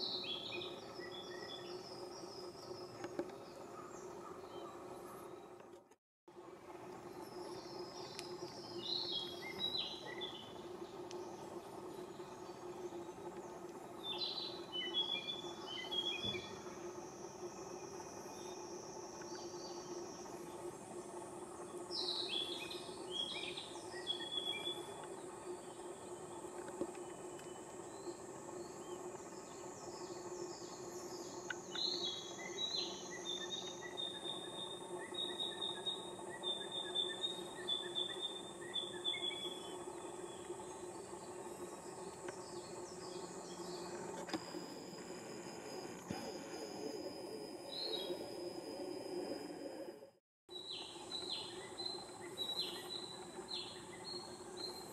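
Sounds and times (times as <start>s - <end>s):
high-pitched insect drone: 27.9s - 50.0s
songbird chirping: 50.5s - 54.9s.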